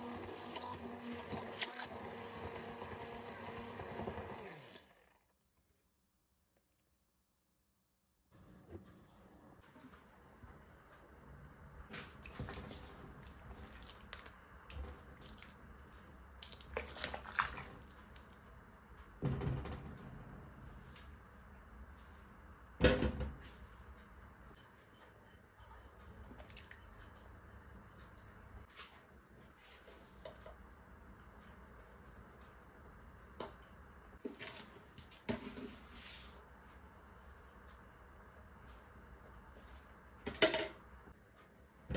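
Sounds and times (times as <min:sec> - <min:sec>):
liquid sloshing: 0:12.0 - 0:18.4.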